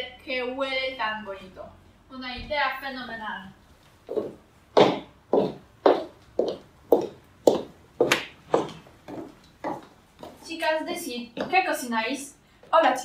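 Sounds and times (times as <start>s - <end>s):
footsteps on hard floor: 3.8s - 10.5s.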